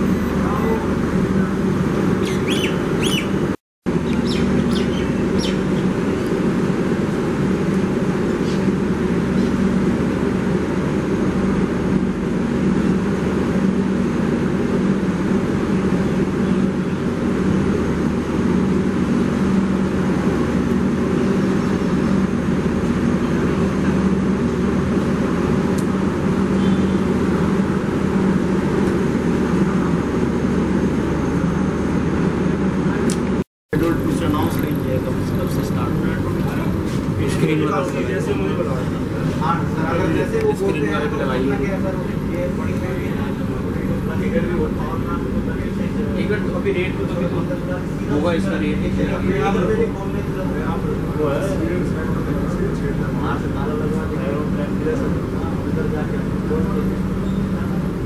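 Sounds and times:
train machinery idling: 0:33.7 - 0:58.0.

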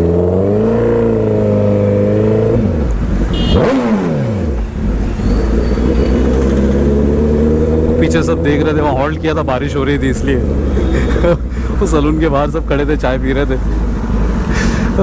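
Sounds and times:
motorcycle engine running: 0:02.7 - 0:11.1.

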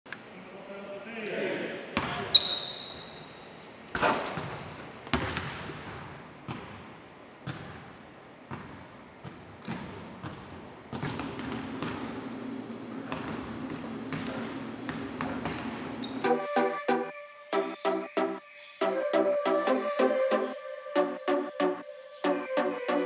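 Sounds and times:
basketballs bouncing on hardwood: 0:04.0 - 0:06.8, 0:07.4 - 0:07.9, 0:08.5 - 0:12.4, 0:13.0 - 0:16.2.

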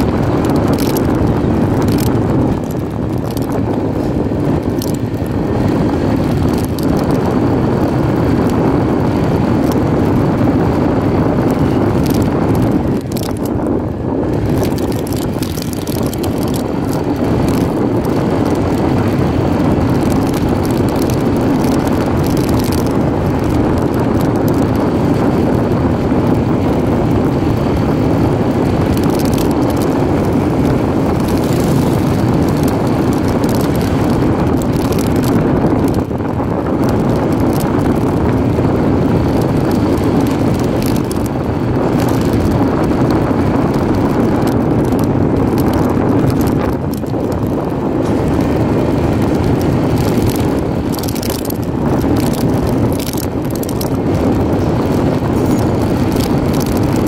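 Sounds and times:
motorcycle road noise: 0:00.0 - 0:57.0
wind buffeting microphone: 0:00.0 - 0:57.0.

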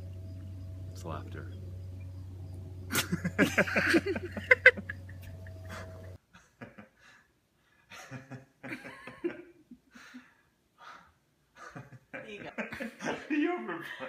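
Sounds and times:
man laughing heartily: 0:02.9 - 0:07.1, 0:07.9 - 0:10.2, 0:11.6 - 0:14.0.

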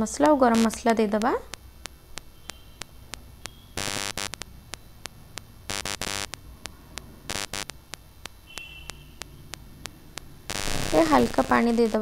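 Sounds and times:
faint even ticking: 0:00.2 - 0:12.0.

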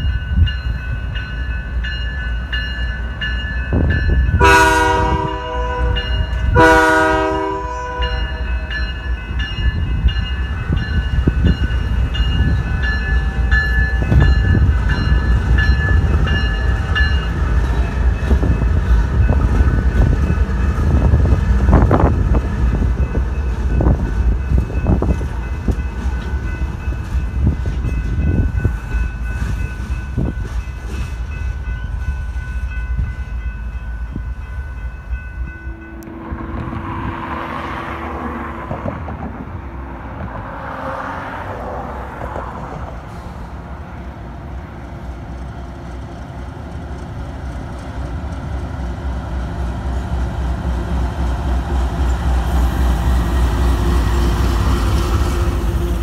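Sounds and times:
diesel locomotive rumbling: 0:00.0 - 0:56.0
wind buffeting microphone: 0:03.4 - 0:06.6, 0:09.3 - 0:33.5, 0:34.1 - 0:40.6
distant train horn: 0:04.3 - 0:09.0
locomotive engine passing: 0:33.2 - 0:56.0.

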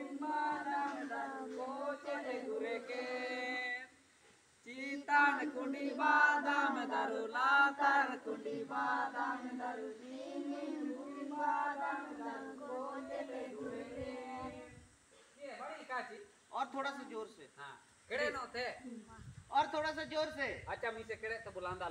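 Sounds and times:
children chanting in unison: 0:00.0 - 0:03.4, 0:05.0 - 0:14.8.

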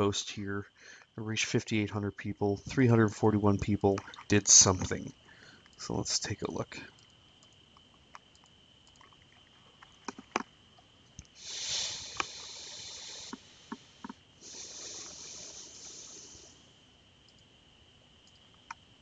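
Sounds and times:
faint high whine: 0:00.0 - 0:19.0
computer mouse clicks: 0:06.9 - 0:09.1, 0:17.3 - 0:17.5, 0:18.2 - 0:18.8
hiss: 0:11.3 - 0:16.9.

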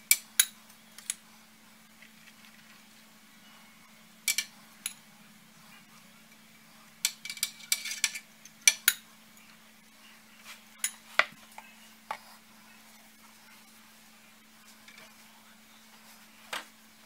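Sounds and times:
faint low hum: 0:00.0 - 0:17.0
metal spoon clinking glass bowl: 0:07.0 - 0:09.0.

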